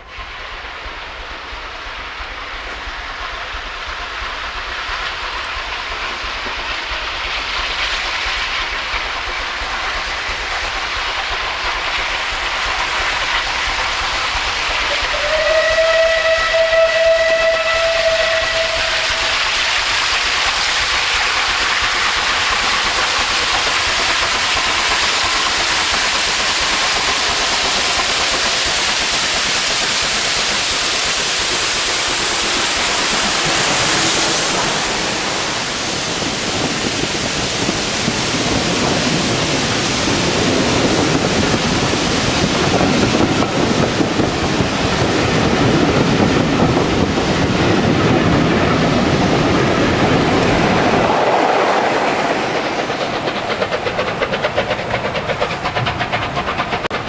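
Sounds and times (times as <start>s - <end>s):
steam locomotive exhaust rushing: 0.0s - 57.0s
coaches rumbling on rails: 21.9s - 57.0s.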